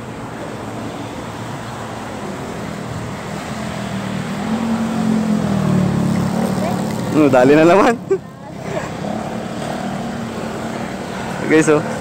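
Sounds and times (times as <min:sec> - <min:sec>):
steady background noise: 0:00.0 - 0:12.0
vehicle engine humming: 0:00.0 - 0:12.0.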